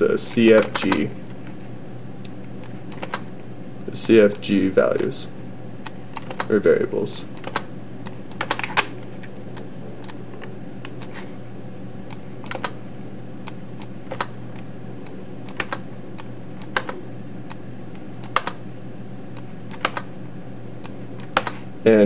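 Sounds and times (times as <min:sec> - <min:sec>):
computer keyboard key presses: 0:19.7 - 0:20.1.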